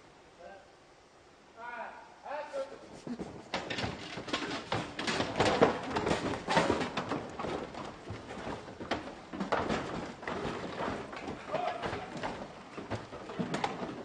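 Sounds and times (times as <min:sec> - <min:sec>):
clatter of feet on wood: 0:02.8 - 0:14.0.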